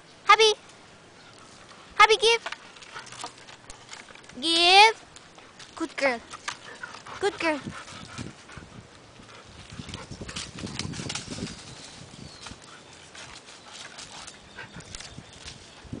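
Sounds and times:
dry leaves crackling underfoot: 10.0 - 16.0.

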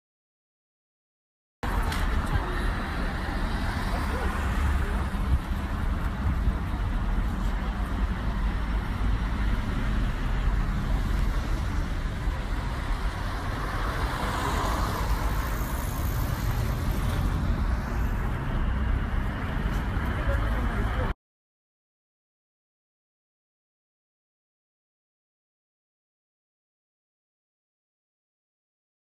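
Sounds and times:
road traffic rumble: 1.6 - 21.2
vehicle passing by: 8.6 - 21.1.

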